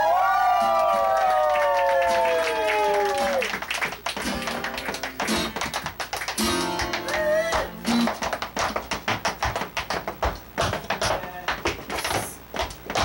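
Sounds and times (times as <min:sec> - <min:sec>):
tap-dance footsteps: 0:03.9 - 0:13.0
ragtime guitar: 0:04.1 - 0:11.6.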